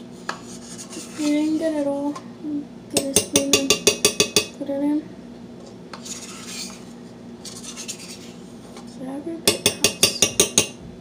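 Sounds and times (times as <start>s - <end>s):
spoon scraping plastic tub: 0.4s - 1.8s.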